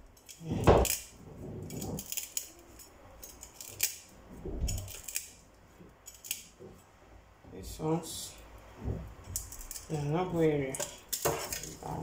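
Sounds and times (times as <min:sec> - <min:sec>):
knife scraping fish: 0:00.2 - 0:04.0.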